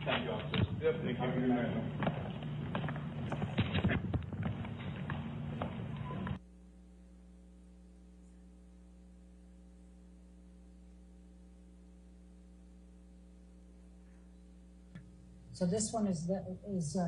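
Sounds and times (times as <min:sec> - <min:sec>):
footsteps: 0:00.0 - 0:06.4
electrical mains hum: 0:00.0 - 0:17.0.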